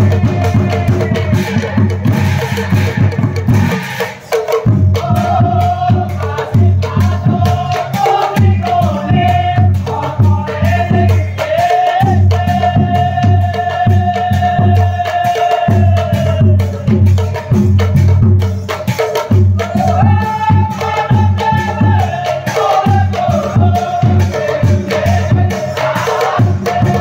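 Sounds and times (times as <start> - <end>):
voices singing: 0.0 - 3.0, 4.1 - 17.0, 19.4 - 27.0
clashing cymbals: 0.0 - 8.6
drums beaten fast: 0.0 - 27.0.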